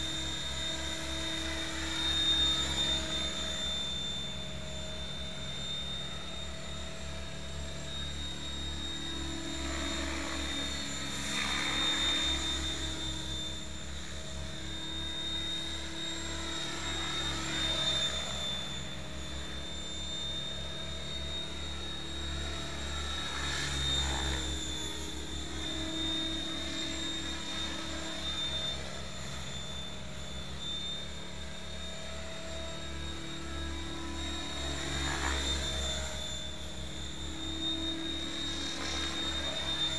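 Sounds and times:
rc helicopter whine: 0.0s - 39.9s.

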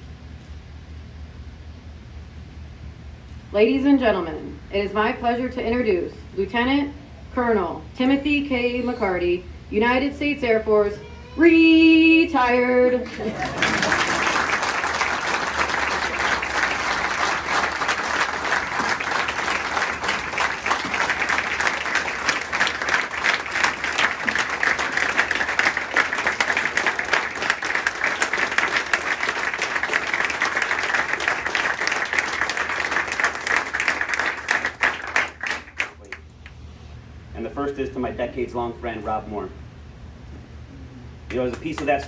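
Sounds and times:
audience applauding: 13.0s - 36.2s.

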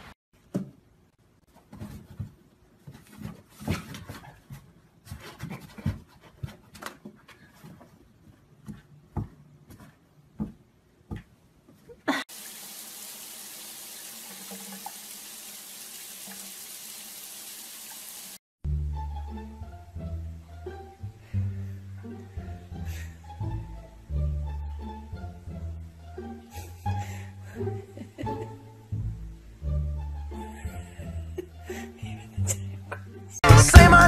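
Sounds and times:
tap water running into bathtub: 12.3s - 18.4s.

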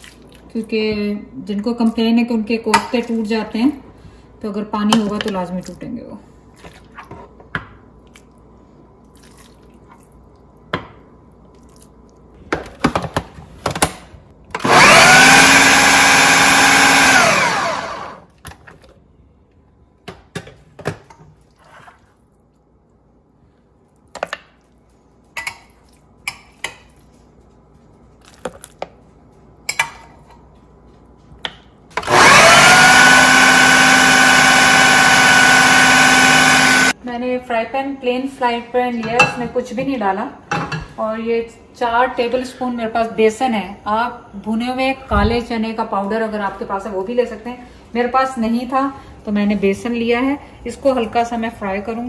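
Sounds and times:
food processor motor grinding: 14.5s - 18.3s, 32.0s - 37.0s.

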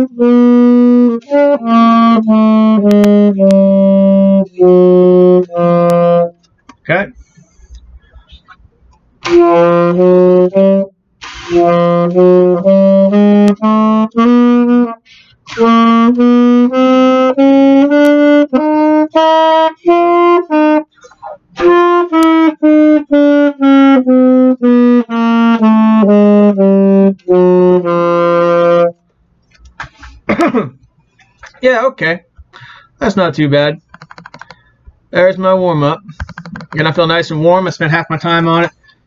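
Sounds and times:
alto saxophone playing scale: 0.0s - 6.4s, 9.2s - 29.0s
saxophonist breath: 15.0s - 15.5s, 29.8s - 30.3s, 32.5s - 33.0s, 34.5s - 34.9s.

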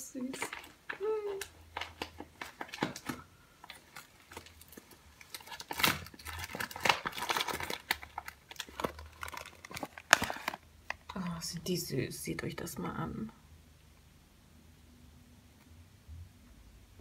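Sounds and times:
packaging crinkling and crackling: 0.1s - 11.9s.

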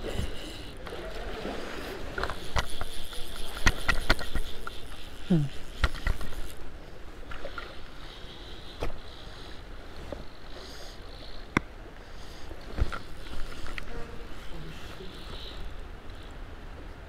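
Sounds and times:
shallow rocky river flowing: 0.0s - 17.0s
fishing rod and reel knocks: 2.2s - 6.6s.

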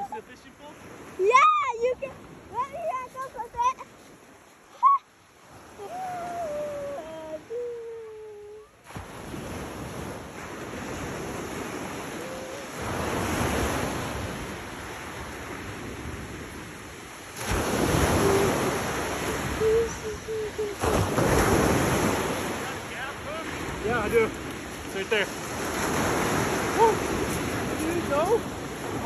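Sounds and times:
waves breaking on gravel beach: 0.0s - 4.7s, 8.8s - 29.0s
wind buffeting microphone: 9.1s - 29.0s.

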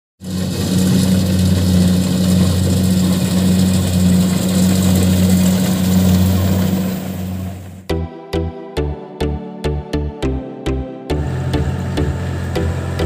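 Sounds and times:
rushing noise of threshing: 0.2s - 7.8s
diesel engine drone: 0.2s - 13.0s.

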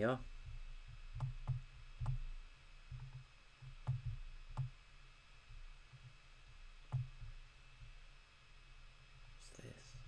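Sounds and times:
faint low hum: 0.0s - 10.0s
computer mouse clicking: 1.1s - 2.3s, 2.9s - 4.7s.

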